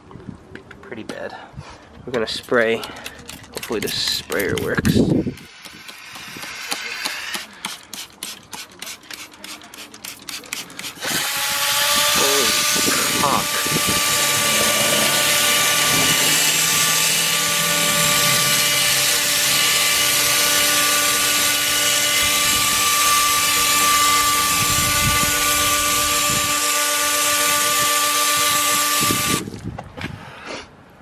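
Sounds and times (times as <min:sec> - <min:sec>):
spraying water: 0:05.4 - 0:23.0
spinning brush whine: 0:10.9 - 0:29.4.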